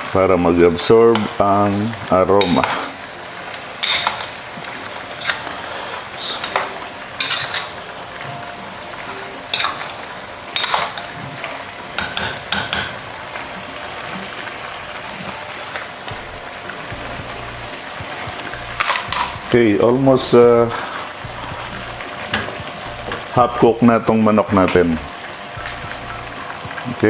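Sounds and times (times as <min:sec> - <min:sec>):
chicken sizzling: 0:00.0 - 0:27.0
spoon scraping metal pot: 0:03.8 - 0:04.4, 0:05.1 - 0:05.6, 0:06.2 - 0:07.8, 0:10.6 - 0:11.0.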